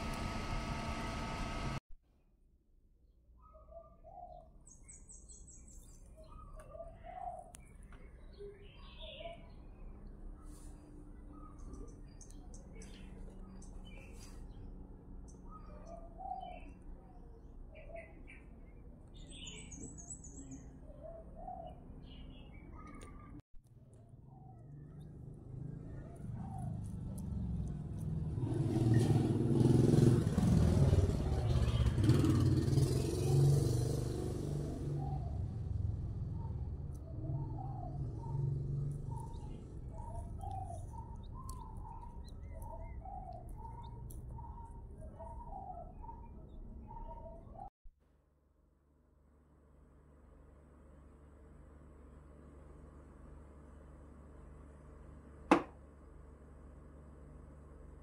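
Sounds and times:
low hum: 0:00.0 - 0:01.9
quail chicks peeping: 0:36.9 - 0:47.4
beaks pecking in plastic dish: 0:38.9 - 0:45.2.

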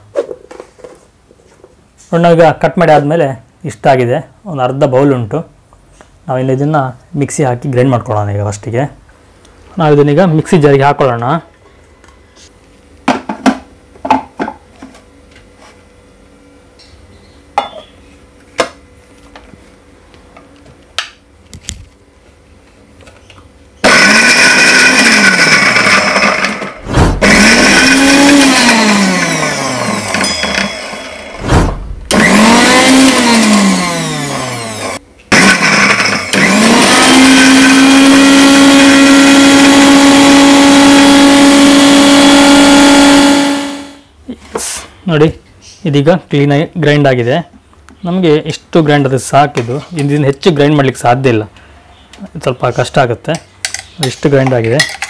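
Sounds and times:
mixer grinder motor running: 0:23.8 - 0:31.4, 0:32.1 - 0:44.0.

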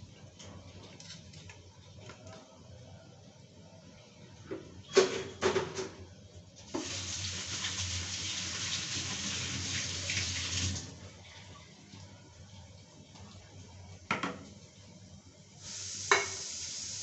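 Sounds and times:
water running from tap: 0:06.7 - 0:12.0, 0:15.6 - 0:17.0.

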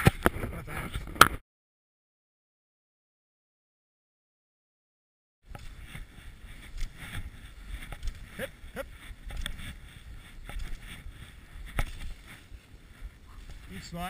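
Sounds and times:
wind rumble: 0:05.5 - 0:14.0.

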